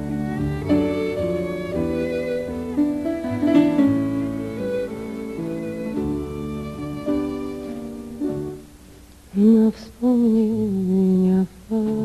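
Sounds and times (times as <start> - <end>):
held string notes: 0.0 - 12.0
person humming wordless notes: 9.3 - 12.0.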